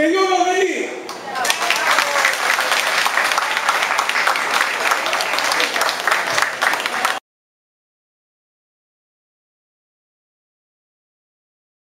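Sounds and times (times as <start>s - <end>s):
audience applauding: 1.4s - 7.2s.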